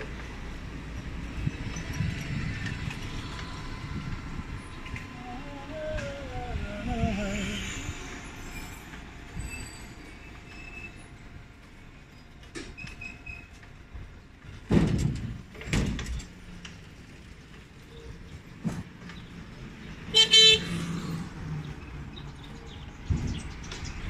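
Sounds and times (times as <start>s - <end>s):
motor vehicles passing: 0.0s - 8.4s, 16.2s - 24.0s
road traffic rumble: 0.0s - 24.0s.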